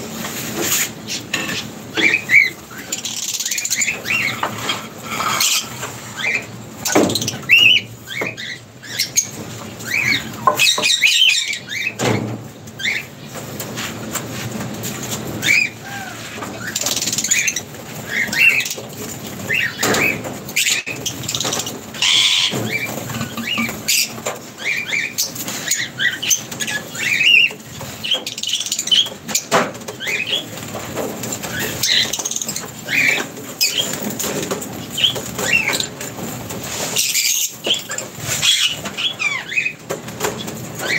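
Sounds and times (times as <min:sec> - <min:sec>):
lovebirds chirping: 0:01.0 - 0:12.0.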